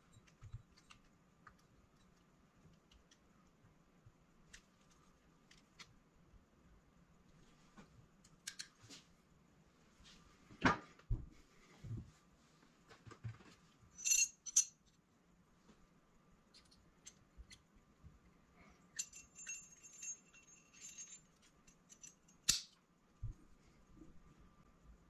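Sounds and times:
small metal parts clinking: 14.0 - 15.0, 18.9 - 22.7.

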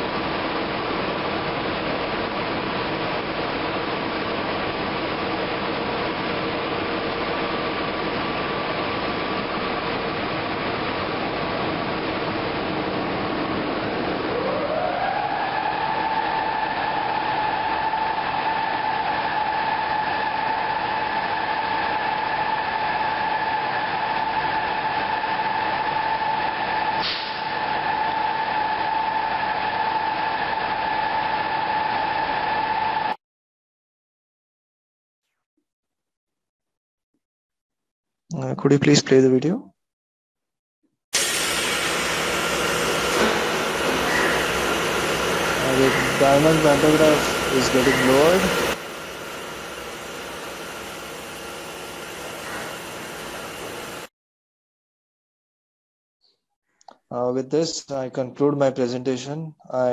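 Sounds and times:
blower motor whine: 0.0 - 33.2, 41.2 - 54.1
locomotive blowers humming: 41.2 - 54.1.

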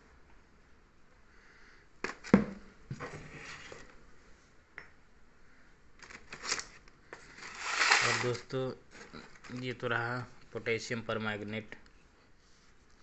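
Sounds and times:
packets rustling: 6.0 - 9.9.

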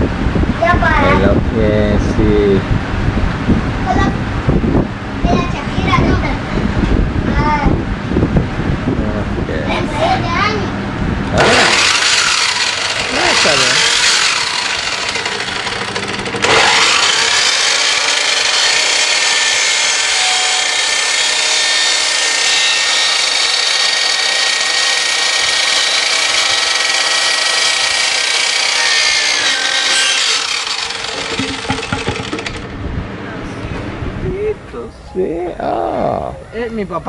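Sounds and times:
miter saw cutting plastic pipe: 11.3 - 32.7.

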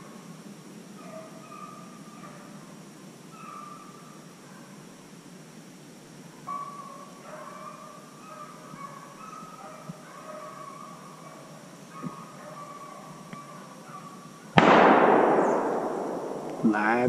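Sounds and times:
dogs baying: 1.0 - 2.7, 3.3 - 4.9, 6.4 - 14.6.

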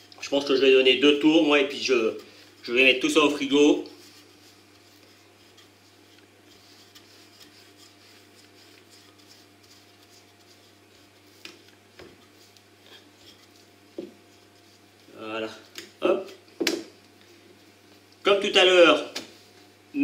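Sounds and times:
rolling pin rubbing on dough: 0.0 - 15.7.

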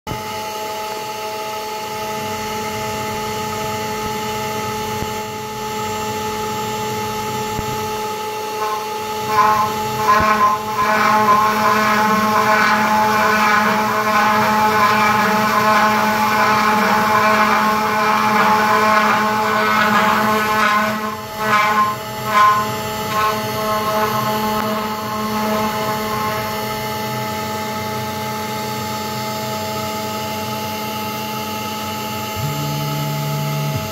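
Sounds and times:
router spindle whine: 1.8 - 29.6
router bit cutting wood: 8.5 - 27.1.

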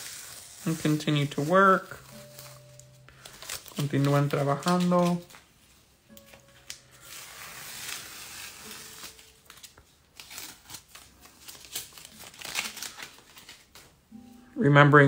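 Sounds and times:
paper rustling and scratching: 0.0 - 14.0.

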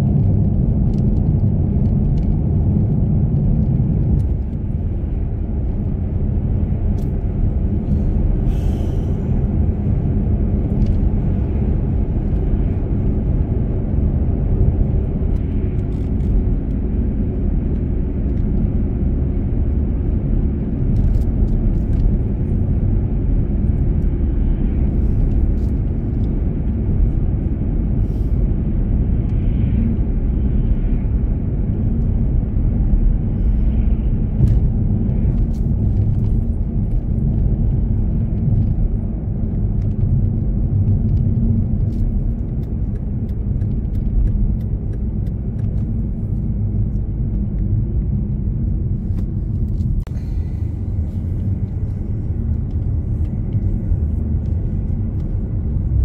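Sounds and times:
car driving on paved road: 0.0 - 56.0.

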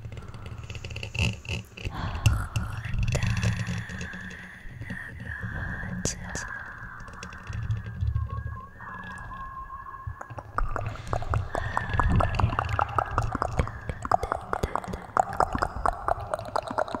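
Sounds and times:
wet mouth clicks and smacks: 10.2 - 17.0.

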